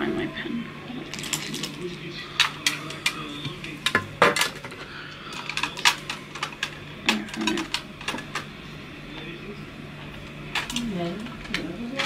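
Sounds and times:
small objects rummaged on desk: 1.1 - 8.5.

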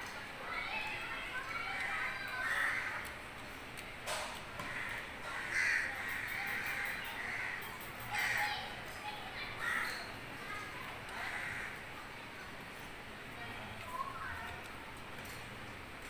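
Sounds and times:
crows cawing: 2.0 - 3.1, 4.6 - 8.7, 9.6 - 10.1, 11.1 - 11.9.

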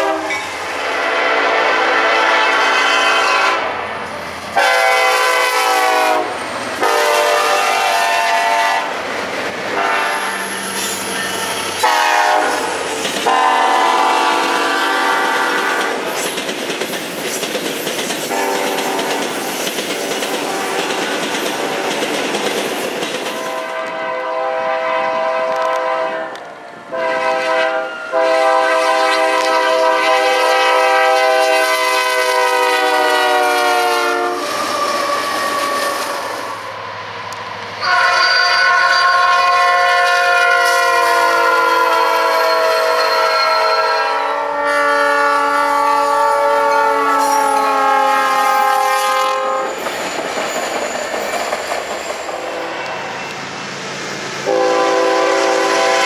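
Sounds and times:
locomotive air horn blasts: 0.0 - 3.8, 4.6 - 8.9, 9.7 - 10.8, 11.4 - 16.0, 18.3 - 19.1, 23.4 - 34.6, 37.8 - 49.8, 54.4 - 56.0
train wheels clattering on rails: 9.2 - 24.0, 49.5 - 53.5.

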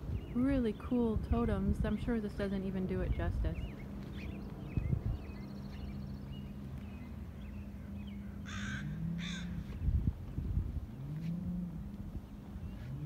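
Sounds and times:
steady low hum: 0.0 - 13.0
crow-like bird caws: 8.4 - 9.6.

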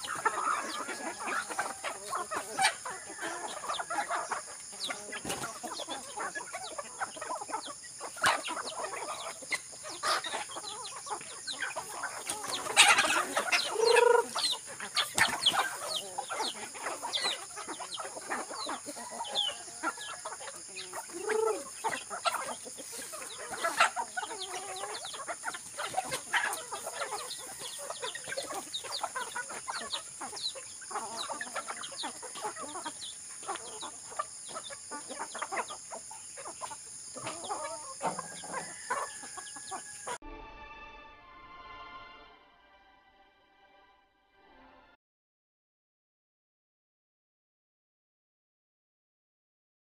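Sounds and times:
chickens clucking: 0.0 - 40.2.

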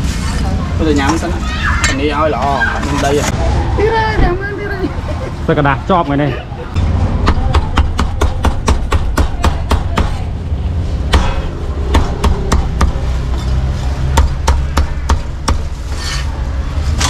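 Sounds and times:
scraping: 11.2 - 17.0.

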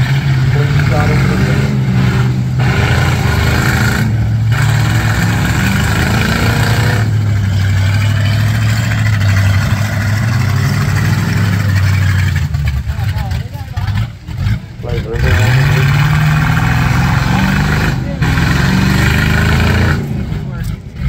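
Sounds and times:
car engines revving loudly: 0.0 - 21.0.

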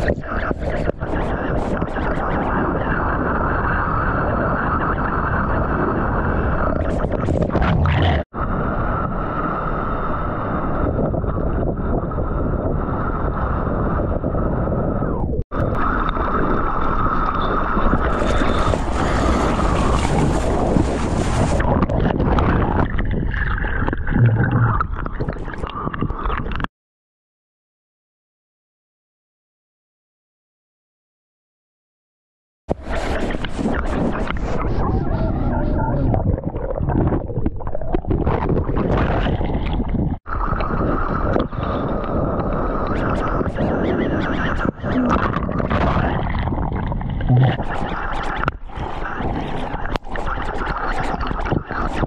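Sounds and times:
seawater rushing muffled: 0.0 - 13.7, 14.6 - 26.2, 32.7 - 52.0
underwater bubbling turbulence: 0.0 - 26.7, 32.7 - 52.0
crackling water splashes: 15.6 - 26.7, 36.2 - 52.0
small clicks underwater: 21.8 - 26.7, 44.1 - 52.0.

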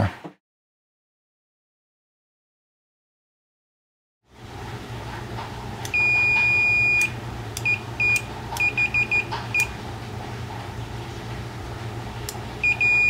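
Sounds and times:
multimeter continuity beeps: 5.9 - 9.8, 12.6 - 13.0.

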